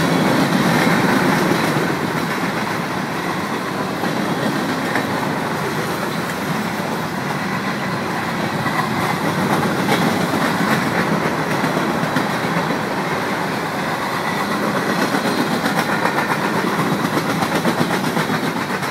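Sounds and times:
train wheels rumbling on rails: 0.0s - 18.9s
wheels clicking over rail joints: 0.0s - 18.9s.

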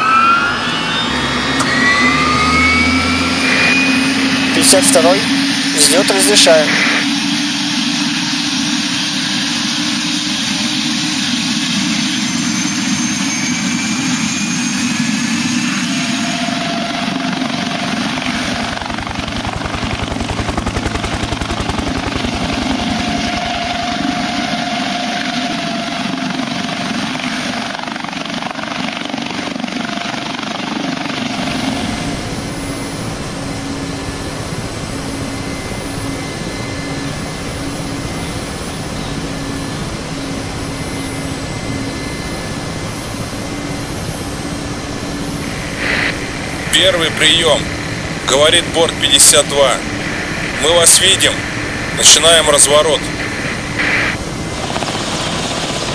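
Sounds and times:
helicopter turbine and rotor: 0.0s - 55.9s.

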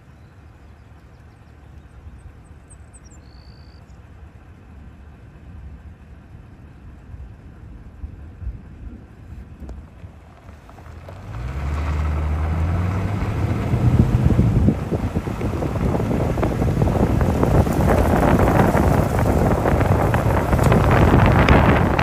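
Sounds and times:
low rumble: 3.9s - 22.0s
gusty wind buffeting microphone: 6.9s - 22.0s.

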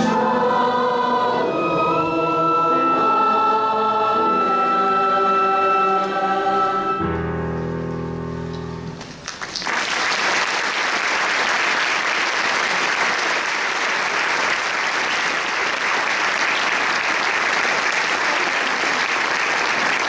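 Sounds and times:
choir holding a chord: 0.0s - 7.5s
audience applause: 9.2s - 20.0s.

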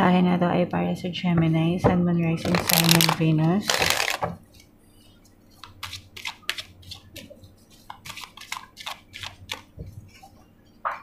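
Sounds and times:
cards being shuffled: 2.5s - 4.3s.

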